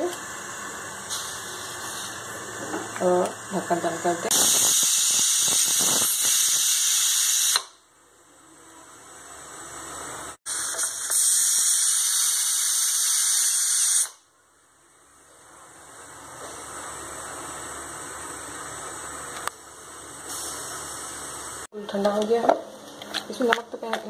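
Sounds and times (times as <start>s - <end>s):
pressure cooker steam hiss: 0.0s - 7.8s, 10.4s - 14.3s, 20.2s - 21.7s.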